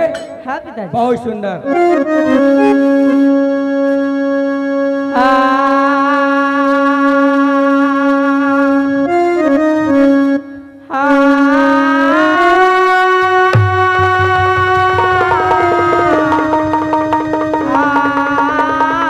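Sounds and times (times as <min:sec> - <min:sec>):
electronic keyboard music: 0:01.7 - 0:10.6, 0:12.3 - 0:19.0.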